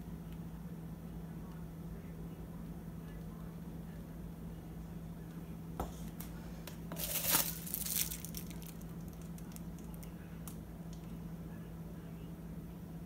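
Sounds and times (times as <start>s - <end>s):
steady low hum: 0.0s - 13.0s
paper crinkling rustle: 6.9s - 10.1s.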